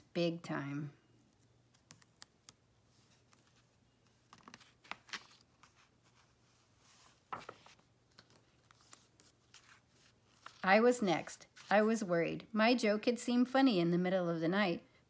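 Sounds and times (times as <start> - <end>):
paper pages rustling: 1.4 - 12.0.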